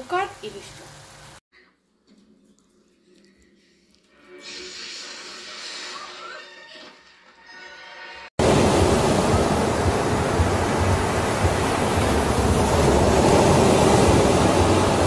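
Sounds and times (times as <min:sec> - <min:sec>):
ocean waves rushing: 0:08.4 - 0:15.0.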